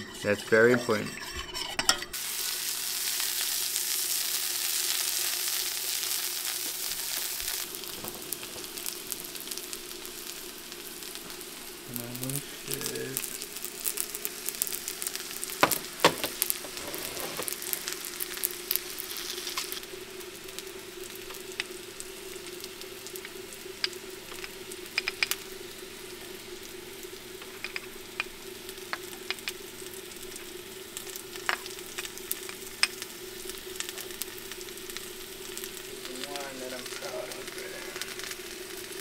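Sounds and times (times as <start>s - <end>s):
food sizzling in hot oil: 0.0s - 39.0s.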